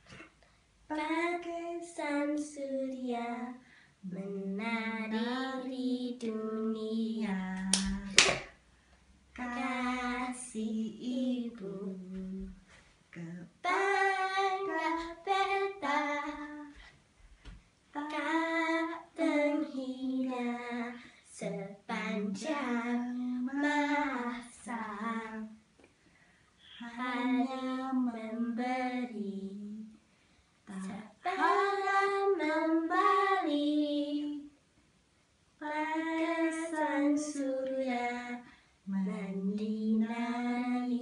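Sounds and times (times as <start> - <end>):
girl singing unaccompanied: 0.0 - 8.6, 9.3 - 25.8, 26.6 - 34.6, 35.5 - 41.0
sharp hand clap: 7.6 - 8.6.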